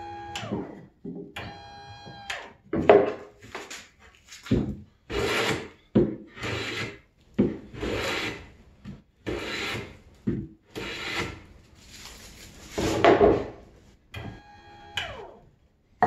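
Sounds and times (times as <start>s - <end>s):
actuator motor whine: 0.0s - 2.6s, 14.1s - 15.5s
board scraping against wood: 3.0s - 8.5s, 10.8s - 13.6s.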